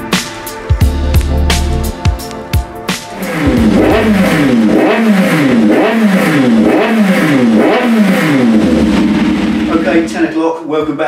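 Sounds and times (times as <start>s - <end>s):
motorcycle engine revving: 3.1s - 10.4s.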